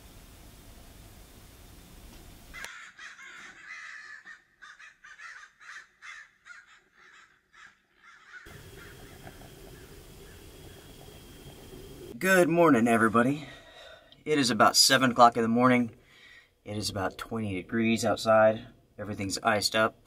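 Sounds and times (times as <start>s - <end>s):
steady hiss: 0.0s - 2.7s, 8.5s - 15.9s
crows cawing: 2.6s - 10.9s.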